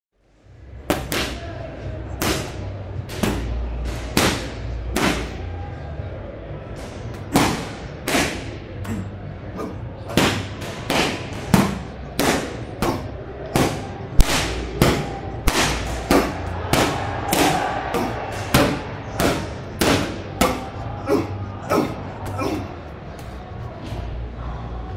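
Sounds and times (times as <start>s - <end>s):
gloves punching focus mitts: 0.8s - 1.4s, 2.1s - 5.4s, 10.1s - 20.8s.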